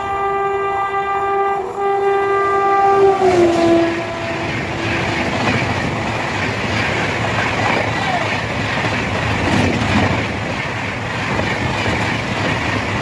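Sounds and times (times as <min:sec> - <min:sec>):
train horn blast: 0:00.0 - 0:06.2
train wheels clattering on rails: 0:03.2 - 0:13.0.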